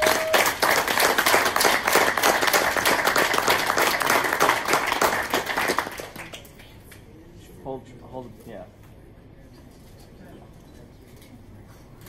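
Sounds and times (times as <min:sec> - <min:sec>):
crowd applauding: 0:00.0 - 0:06.7.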